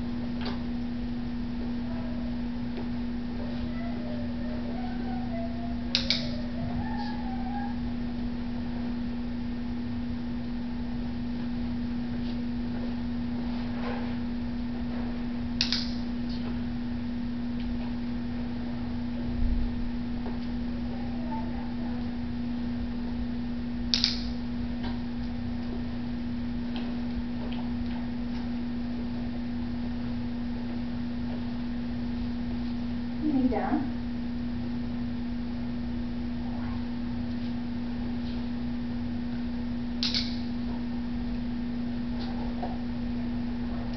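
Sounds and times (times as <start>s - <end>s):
low hum: 0.0s - 43.9s.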